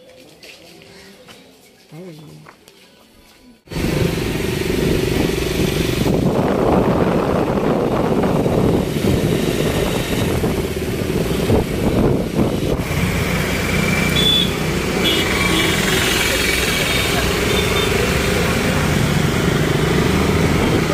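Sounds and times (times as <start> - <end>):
motorcycle engines running: 3.7 - 20.9
road and wind noise: 3.7 - 20.9.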